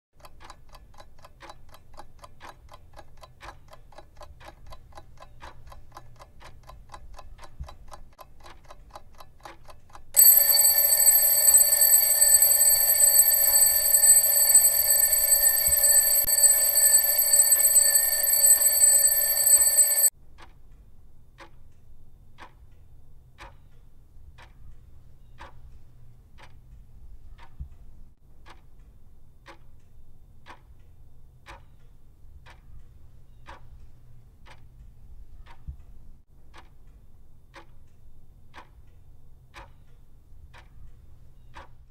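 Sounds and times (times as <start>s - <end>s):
alarm clock bell ringing: 10.2s - 20.1s
alarm clock ticking: 10.2s - 20.1s.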